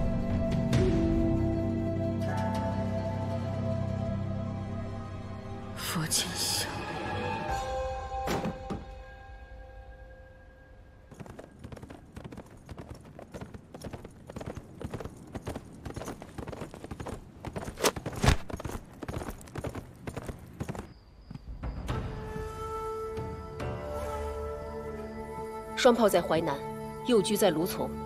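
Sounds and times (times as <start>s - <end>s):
music: 0.0s - 11.0s, 21.5s - 28.0s
horse hooves galloping: 11.1s - 21.5s.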